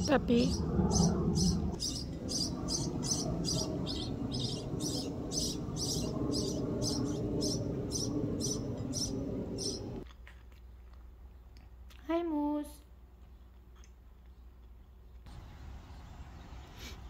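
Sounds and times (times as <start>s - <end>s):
low steady rumble: 0.0s - 10.0s
small bird chirping: 0.0s - 10.0s.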